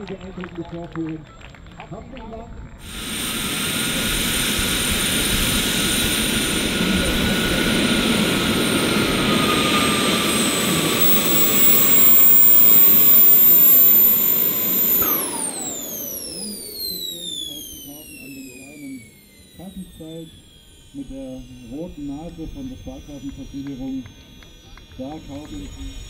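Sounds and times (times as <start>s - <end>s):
model jet turbines whining: 2.3s - 26.0s
rushing exhaust noise: 2.8s - 26.0s.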